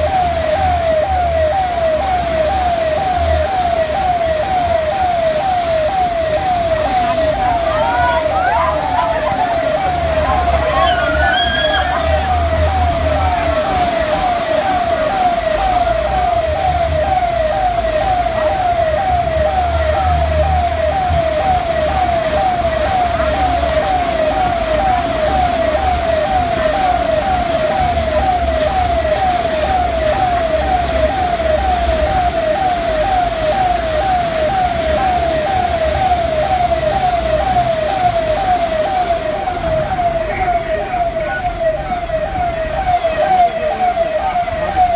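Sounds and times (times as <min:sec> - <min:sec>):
siren warbling: 0:00.0 - 0:44.9.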